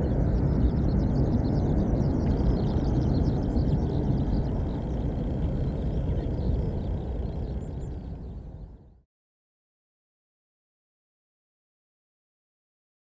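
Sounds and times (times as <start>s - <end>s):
jet engines rumbling: 0.0s - 8.8s.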